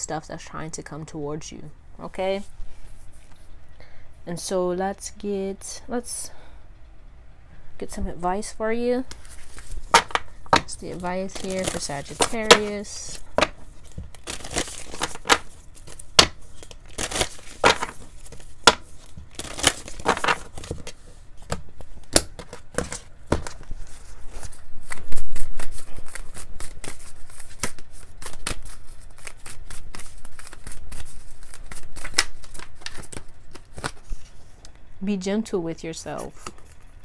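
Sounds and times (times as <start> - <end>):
cards being shuffled: 9.1 - 34.7.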